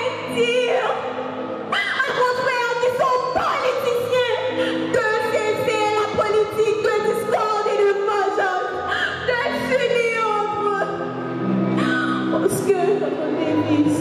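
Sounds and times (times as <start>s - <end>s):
woman singing into microphone: 11.8s - 14.0s.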